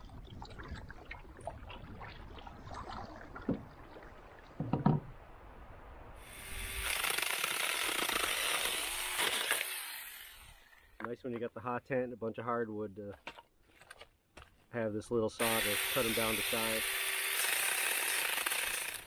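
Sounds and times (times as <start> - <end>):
water lapping: 0.0 - 6.6
wind: 0.0 - 19.0
chainsaw cutting wood: 6.3 - 11.0, 15.4 - 19.0.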